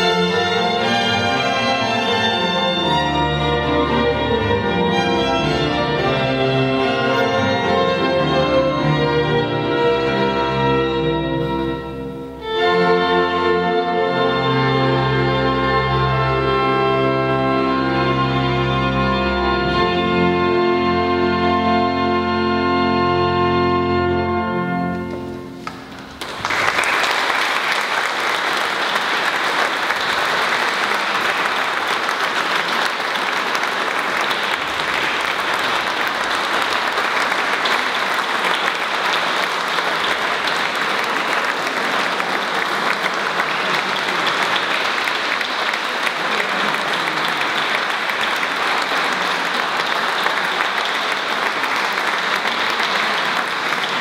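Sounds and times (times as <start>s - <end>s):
audience applause: 25.6s - 54.0s.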